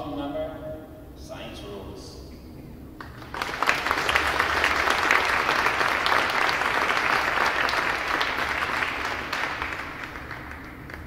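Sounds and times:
crowd applauding: 3.0 - 11.0.

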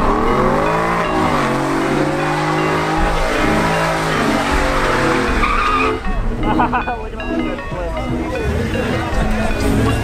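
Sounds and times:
truck engine revving: 0.0 - 10.0
tyres squealing on pavement: 2.6 - 6.2.

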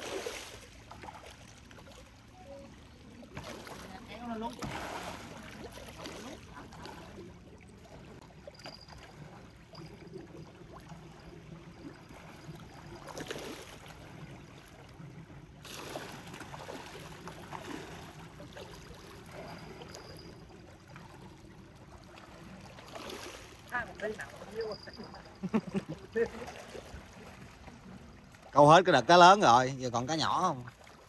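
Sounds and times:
water lapping: 0.0 - 31.0.

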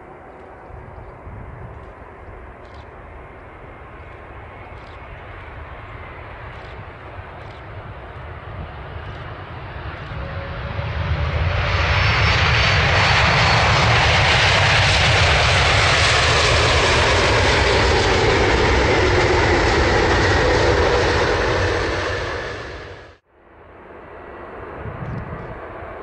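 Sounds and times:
jet airliner engines: 0.0 - 26.0.

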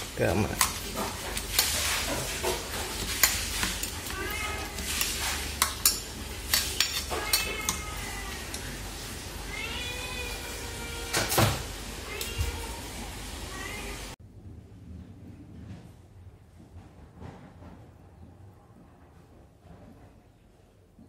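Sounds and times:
chopsticks clinking against metal bowl: 0.3 - 8.7
cat meowing: 4.0 - 4.9, 7.0 - 8.7, 9.4 - 11.3.

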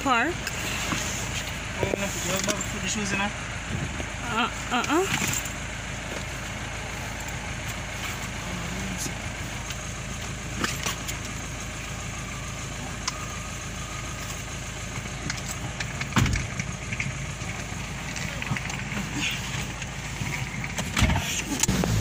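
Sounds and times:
car engine idling: 0.0 - 22.0
loud thump: 16.2 - 16.5.

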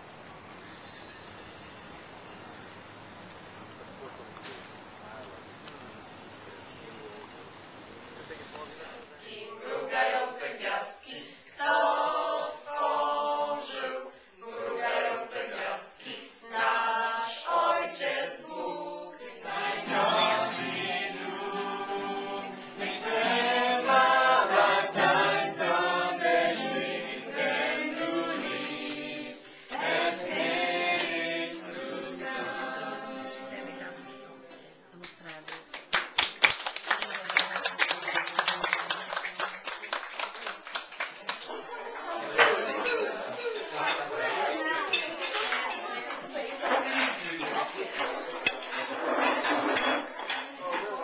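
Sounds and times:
group singing unaccompanied: 9.2 - 34.8, 42.0 - 51.0.

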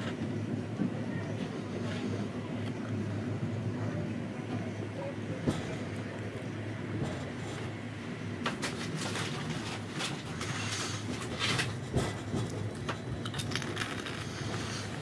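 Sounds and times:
train carriage rumbling: 0.0 - 15.0
train wheels clicking and rattling: 5.4 - 7.8, 8.4 - 15.0.

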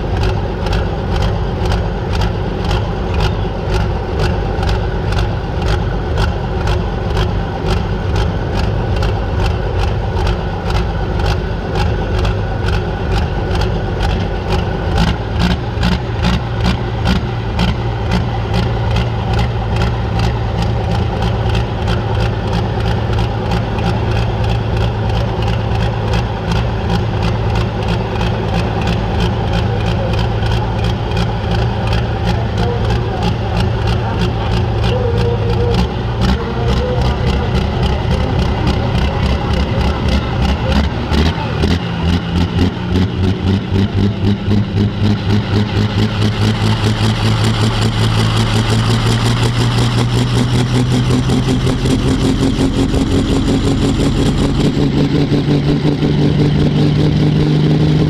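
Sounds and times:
tractor engine idling: 0.0 - 58.0.

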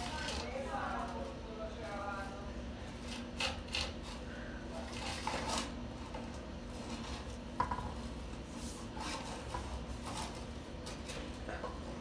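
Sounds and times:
steady low hum: 0.0 - 12.0
cable scraping in pipe: 8.5 - 11.2.

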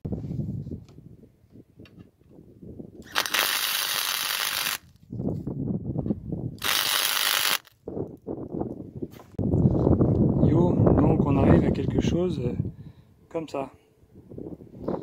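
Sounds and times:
welder arc crackle: 3.0 - 4.9, 6.6 - 7.7.

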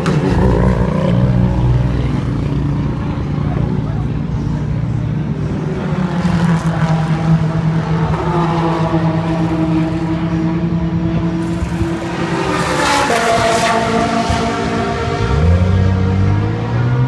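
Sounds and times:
race car engine idling: 0.0 - 12.5.

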